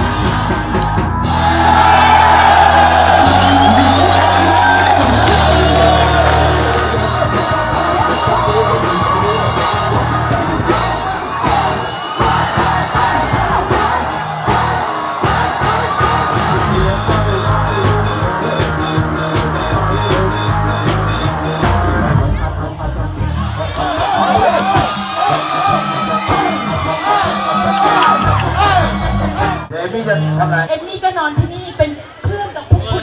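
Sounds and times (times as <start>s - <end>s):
crowd yelling and whooping: 0.0s - 18.8s, 22.7s - 29.7s
steady beat: 0.0s - 22.0s
loud music with singing: 0.0s - 29.7s.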